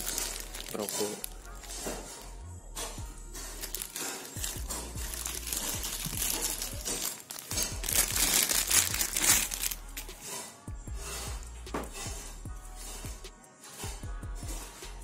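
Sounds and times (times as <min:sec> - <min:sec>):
plastic wrapping crinkling: 0:00.0 - 0:02.2, 0:03.4 - 0:10.1.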